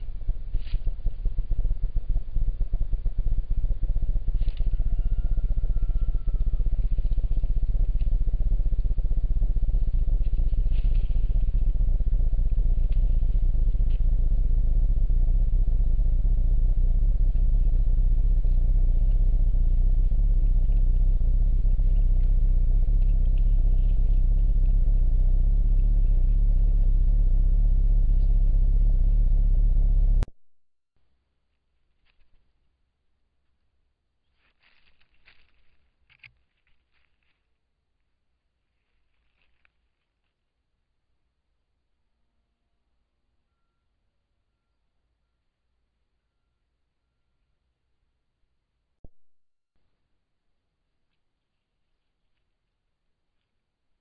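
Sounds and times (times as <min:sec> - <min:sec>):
low rumbling noise: 0:00.0 - 0:30.3.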